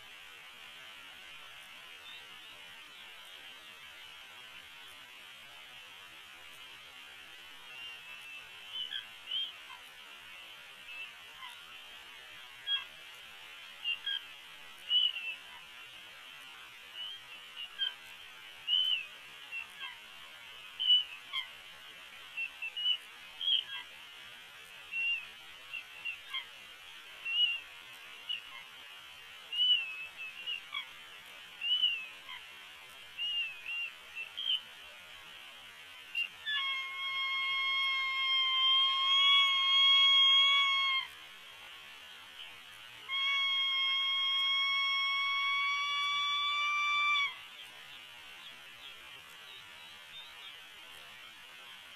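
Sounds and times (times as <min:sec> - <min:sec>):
steady hiss: 0:00.0 - 0:51.9
eagles chirping: 0:36.1 - 0:41.2, 0:43.0 - 0:47.4.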